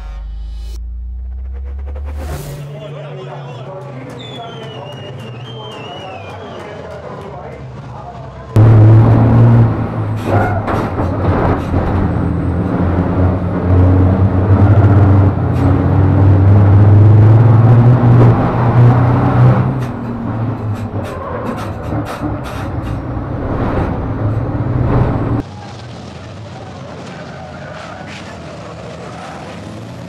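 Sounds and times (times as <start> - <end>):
diesel truck engine running hard: 1.3 - 30.0
sharp clicks and knocks: 19.6 - 25.4.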